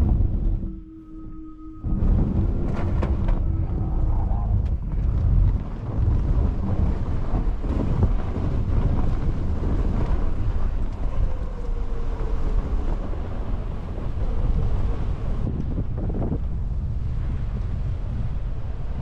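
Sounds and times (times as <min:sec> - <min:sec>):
faint tone sliding down: 0:00.0 - 0:05.6
wind buffeting microphone: 0:00.0 - 0:19.0.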